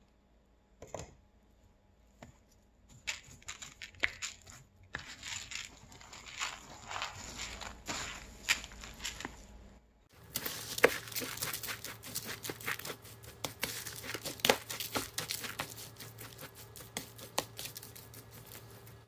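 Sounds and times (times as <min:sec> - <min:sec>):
rustling and crackling of rice: 0:02.9 - 0:19.0.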